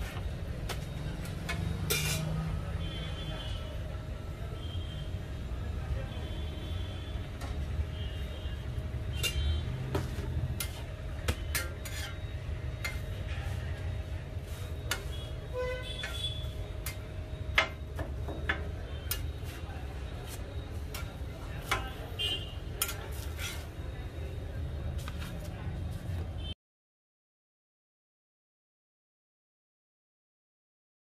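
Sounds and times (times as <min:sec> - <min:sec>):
metal utensils clinking: 0:01.5 - 0:02.4.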